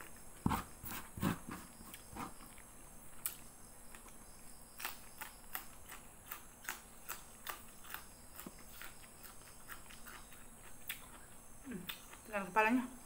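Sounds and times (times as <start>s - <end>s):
person chewing: 0.0s - 4.2s, 4.8s - 12.3s.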